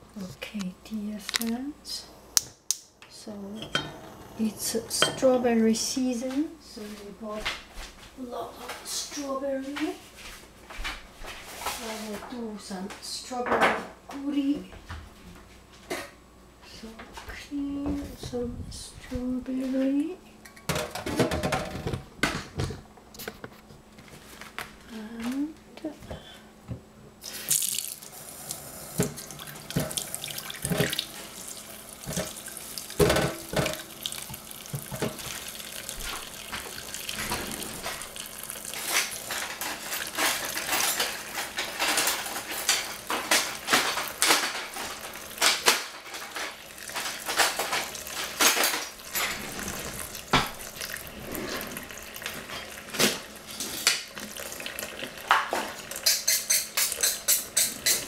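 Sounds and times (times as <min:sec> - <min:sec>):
tap running into saucepan: 0:28.9 - 0:31.4, 0:32.0 - 0:50.9, 0:52.2 - 0:58.0.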